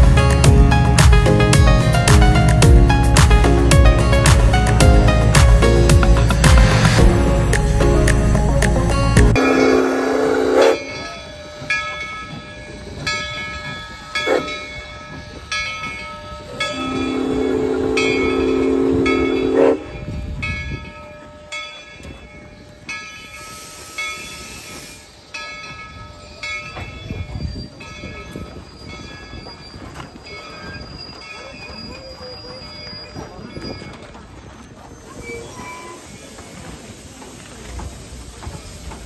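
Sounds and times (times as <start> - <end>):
locomotive bell ringing: 7.7 - 36.7
steam whistle blast: 9.4 - 11.0, 16.7 - 20.0.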